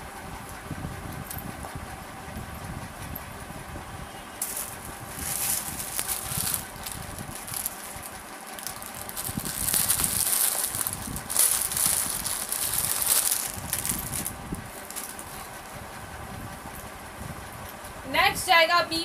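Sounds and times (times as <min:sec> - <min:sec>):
fabric and wrapping rustling: 0:04.4 - 0:15.6.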